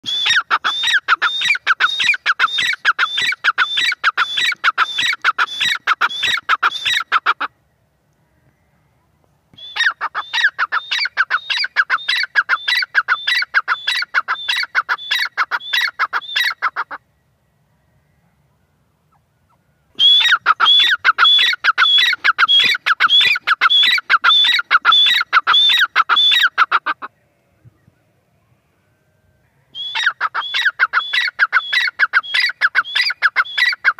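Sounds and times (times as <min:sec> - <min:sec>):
francolin calling: 0:00.0 - 0:27.1, 0:29.7 - 0:33.9.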